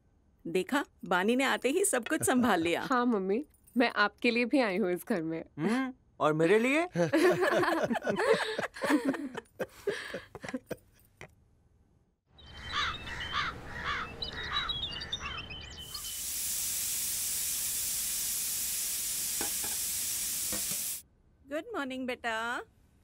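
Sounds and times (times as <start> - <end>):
voices and laughter: 7.0 - 10.8
birds chirping: 12.4 - 16.2
pressure cooker hissing: 15.8 - 21.0.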